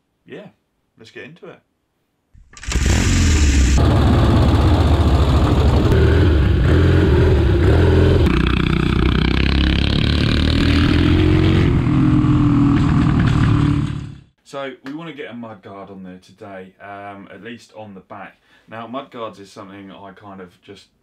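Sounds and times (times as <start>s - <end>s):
motorcycle engine revving: 2.6s - 14.3s.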